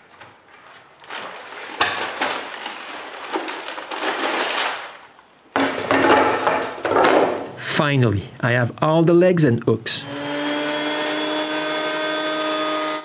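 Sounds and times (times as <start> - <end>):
wooden strips rustling and scraping: 0.0 - 7.5.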